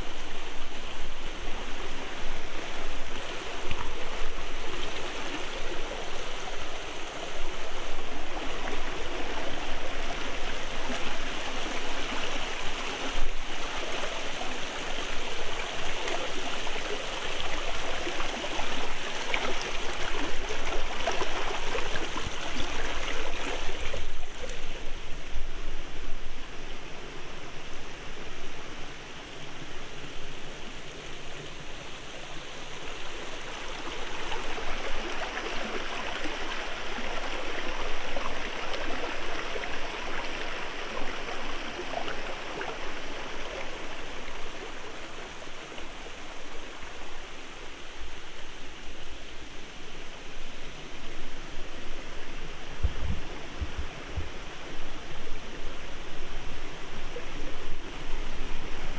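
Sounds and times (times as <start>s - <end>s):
stream flowing over stones: 0.0s - 58.9s.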